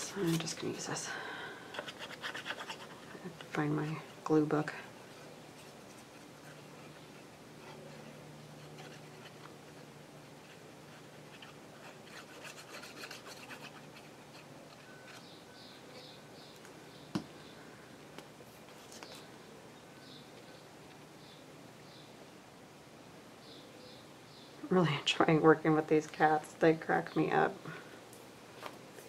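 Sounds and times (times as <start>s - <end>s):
paper rubbing and rustling: 1.7s - 3.6s, 5.5s - 15.3s.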